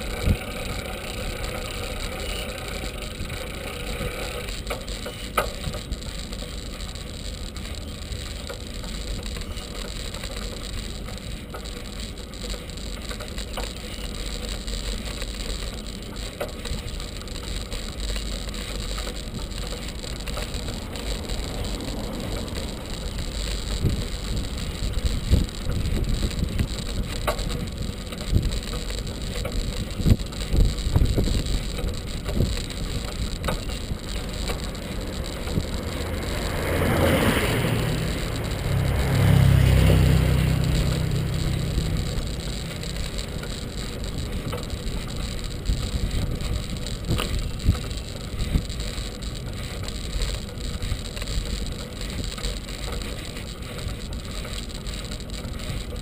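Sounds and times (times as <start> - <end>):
wind rumble on microphone: 0.0 - 0.6, 19.2 - 56.0
bicycle tyre noise: 0.0 - 56.0.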